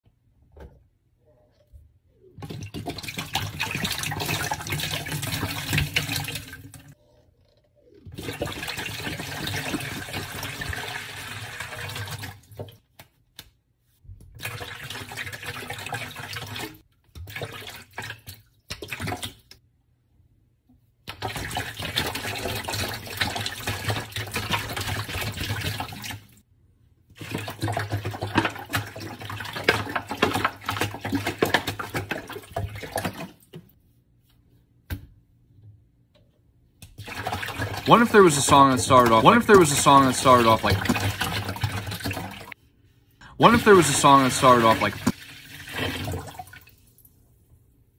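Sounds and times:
water pouring into wooden bowl: 0:43.4 - 0:47.0.

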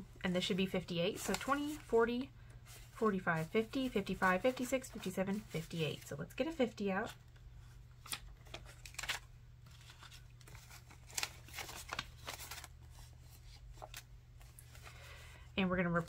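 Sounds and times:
paper bills rustling and snapping: 0:07.3 - 0:15.0.

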